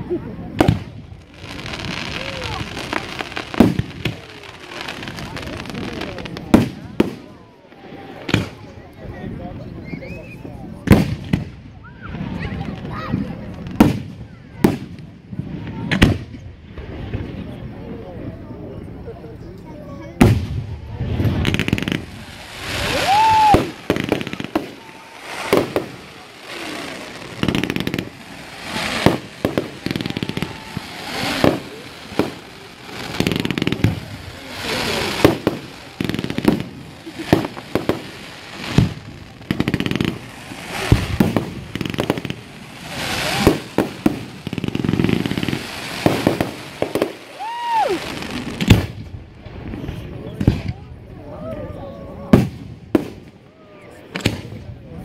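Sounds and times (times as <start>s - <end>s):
firework crackle: 0.2s - 18.2s, 19.8s - 51.3s, 52.2s - 54.8s
firework whistle: 21.2s - 39.0s
firework shells bursting: 21.3s - 47.3s.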